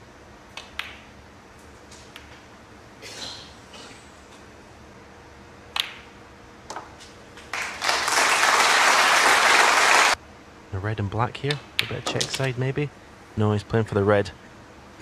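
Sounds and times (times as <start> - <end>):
snooker balls clicking: 0.5 - 1.1, 5.7 - 6.1, 11.4 - 12.6
audience applause: 7.5 - 10.2.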